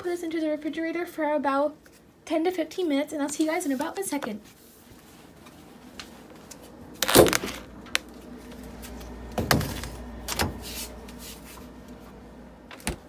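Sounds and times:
fridge humming: 5.2s - 13.0s
refrigerator door thump: 9.3s - 10.7s, 12.7s - 13.0s.

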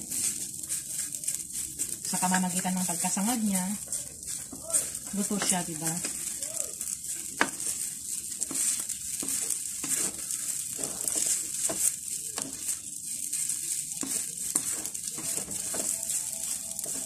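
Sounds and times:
noodles sizzling in oil: 0.0s - 17.0s
spatula scraping and knocking wok: 0.0s - 17.0s.

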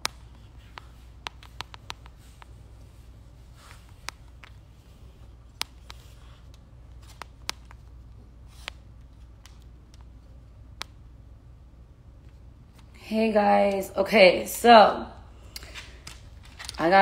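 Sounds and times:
fingers clicking and tapping phone: 0.0s - 2.5s, 5.5s - 7.9s.

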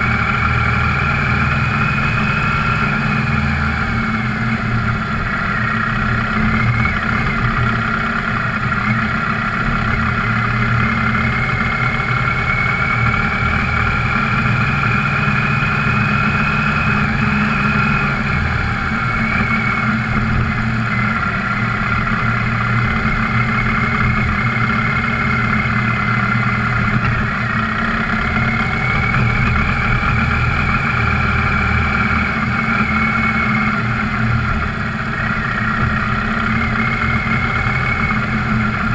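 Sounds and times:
high whine: 0.0s - 38.9s
off-road vehicle engine running: 0.0s - 38.9s.

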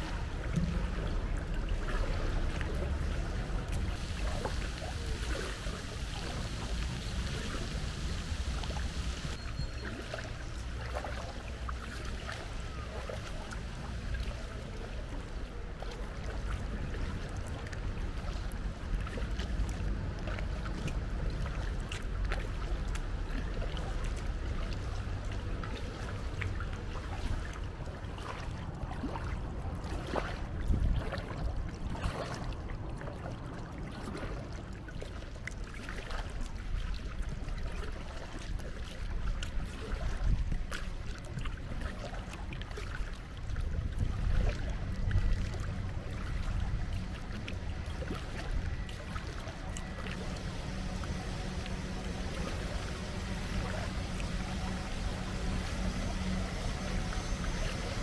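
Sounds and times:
paddle splashes and drips: 0.0s - 58.0s
low rumble: 43.2s - 58.0s.

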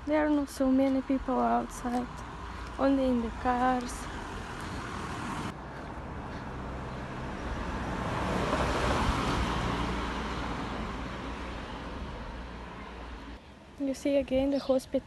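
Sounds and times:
car driving past: 3.9s - 13.4s.

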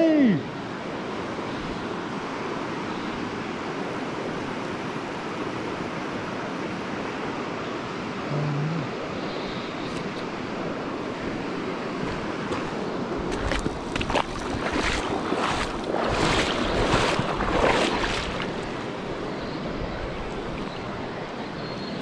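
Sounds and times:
river running over stones: 8.8s - 22.0s.

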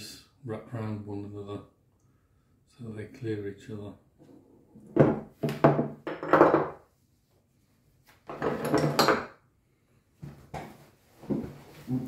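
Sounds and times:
metal parts knocking on wooden table: 4.9s - 6.8s, 8.3s - 9.3s.

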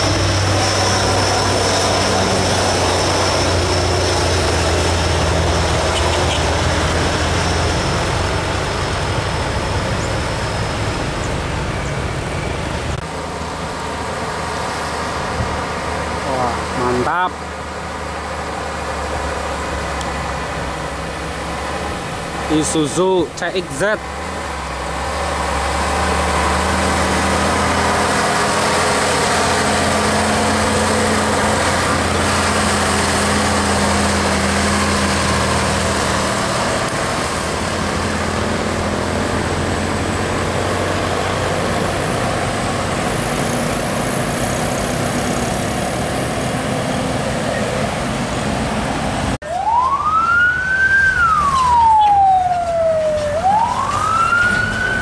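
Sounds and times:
truck diesel engine passing: 0.0s - 55.0s
tyre and road noise: 0.0s - 55.0s
wailing siren: 49.4s - 55.0s.

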